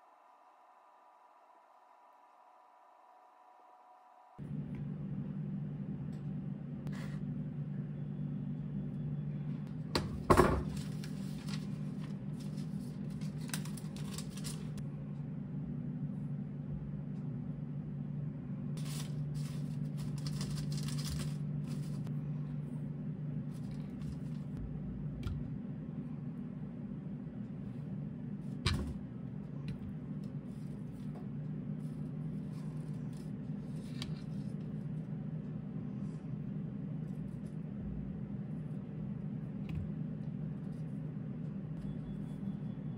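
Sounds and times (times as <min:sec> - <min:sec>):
low hum: 0:04.4 - 0:42.9.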